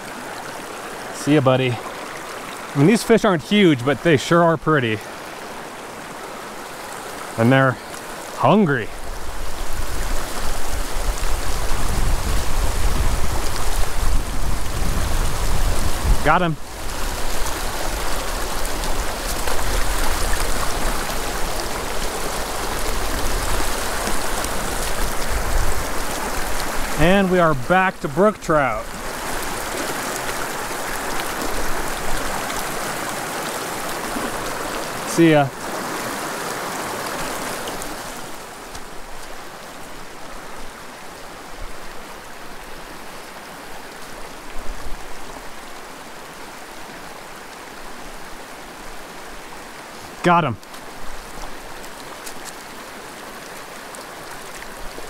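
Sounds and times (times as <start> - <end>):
stream flowing over rocks: 0.0 - 55.0.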